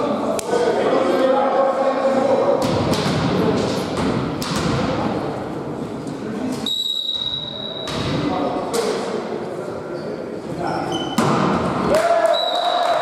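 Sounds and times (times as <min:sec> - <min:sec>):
thuds and knocks in a hall: 0:02.6 - 0:05.2, 0:07.8 - 0:09.0, 0:11.1 - 0:12.1
referee's whistle: 0:06.6 - 0:07.9, 0:12.2 - 0:12.9.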